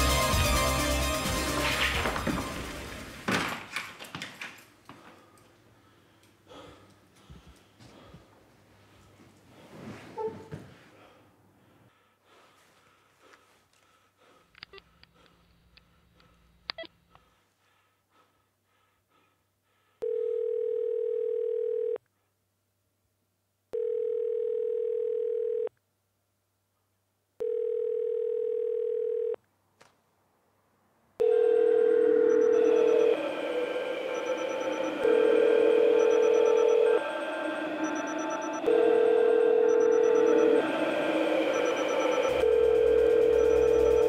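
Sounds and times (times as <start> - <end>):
music: 0.0 - 3.2, 32.2 - 44.0
telephone ringing tone: 20.0 - 22.0, 23.8 - 25.7, 27.4 - 29.4, 31.2 - 44.0.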